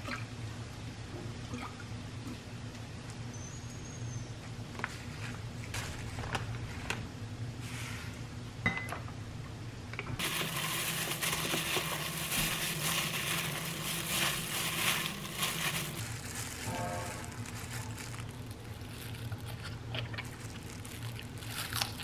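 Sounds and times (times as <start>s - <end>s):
plastic glove crinkling: 10.2s - 22.0s
wet leaves rustling and squishing: 10.2s - 22.0s.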